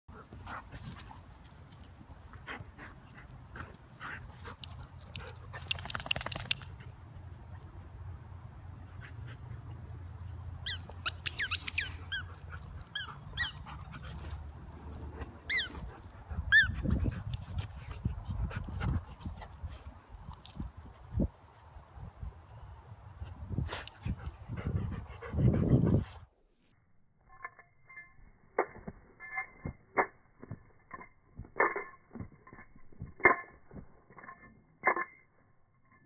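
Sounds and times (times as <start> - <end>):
high squeaks falling in pitch: 10.6 - 12.3.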